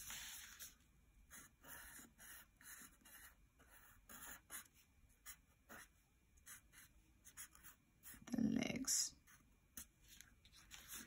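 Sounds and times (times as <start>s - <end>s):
marker scratching on paper: 1.3s - 8.3s, 10.6s - 11.0s.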